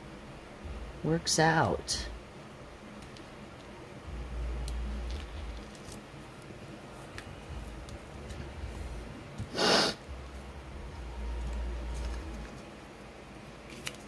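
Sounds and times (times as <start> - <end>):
sharp breath through the nose: 9.5 - 10.0.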